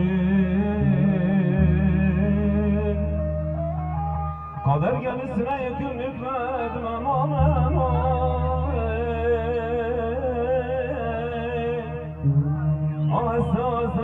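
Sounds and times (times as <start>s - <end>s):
electronic keyboard bass: 0.0s - 5.6s
man singing ornamented melody: 0.0s - 14.0s.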